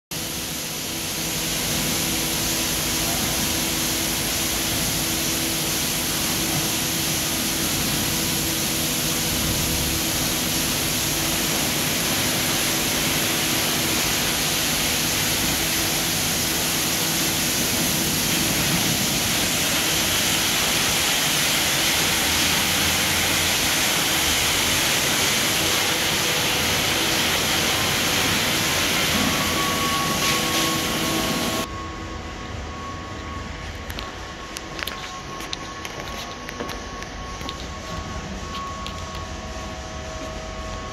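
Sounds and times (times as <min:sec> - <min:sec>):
car wash machinery hum: 0:00.1 - 0:40.9
water spraying: 0:00.2 - 0:31.7.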